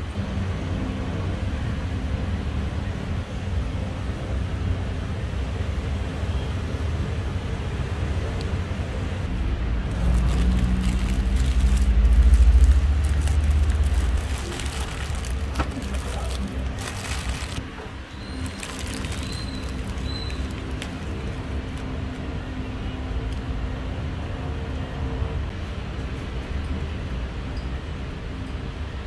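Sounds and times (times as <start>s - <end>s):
road traffic rumble: 0.0s - 29.0s
vehicle passing: 9.2s - 17.6s
paper wrapper crackling: 9.9s - 22.3s.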